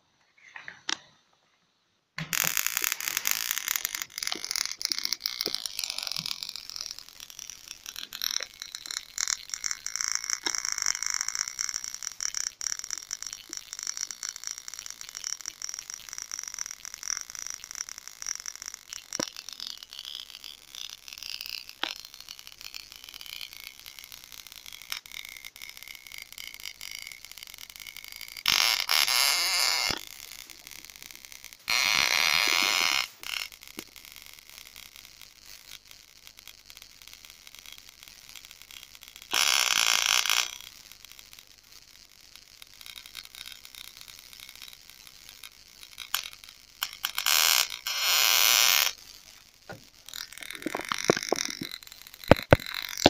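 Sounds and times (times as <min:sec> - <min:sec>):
high-voltage discharge crackling: 0:02.3 - 0:53.0.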